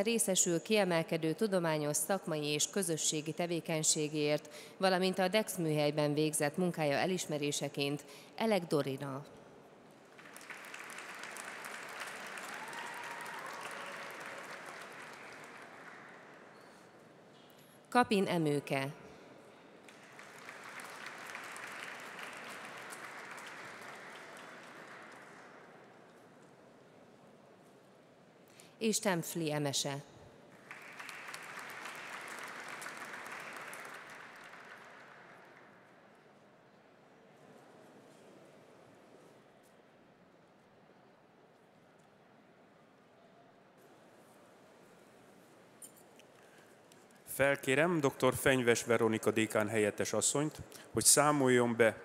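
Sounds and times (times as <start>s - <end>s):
audience applauding: 10.0s - 16.6s, 19.8s - 25.7s, 30.5s - 35.9s.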